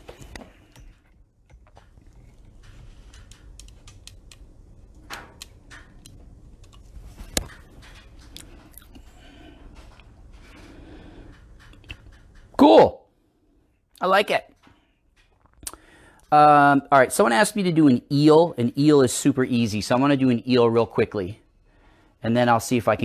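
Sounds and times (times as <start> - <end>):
soft rustles: 6.5 - 12.5.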